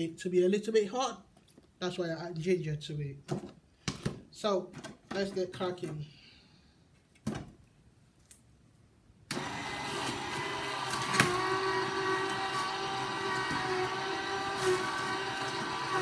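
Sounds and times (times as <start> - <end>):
electric juicer motor running: 9.3 - 16.0.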